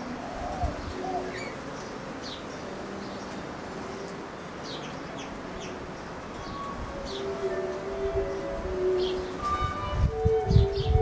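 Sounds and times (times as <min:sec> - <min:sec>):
dove cooing: 0:00.0 - 0:01.8
small birds chirping: 0:00.0 - 0:07.9
steady outdoor hiss: 0:00.0 - 0:11.0.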